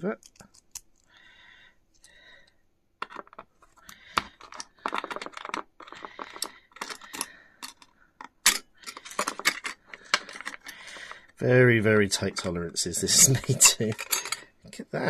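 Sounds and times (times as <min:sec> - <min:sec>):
screwdriver clicks and scrapes: 0:03.0 - 0:10.7
metal parts knocking on case: 0:03.0 - 0:10.8.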